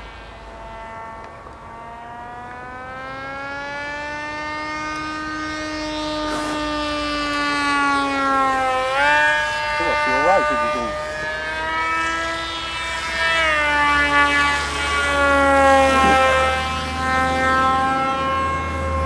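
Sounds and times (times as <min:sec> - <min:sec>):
model plane motor whining: 0:00.0 - 0:19.0.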